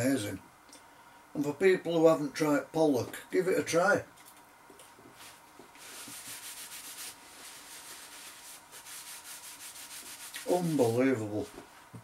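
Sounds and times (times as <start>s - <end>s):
paper napkin rustling: 5.2s - 11.9s.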